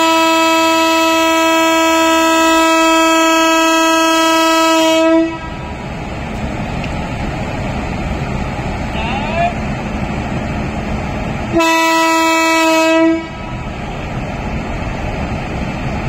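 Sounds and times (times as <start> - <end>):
locomotive horn: 0.0 - 5.7, 11.5 - 13.5
train wheels rumbling on track: 0.0 - 16.0.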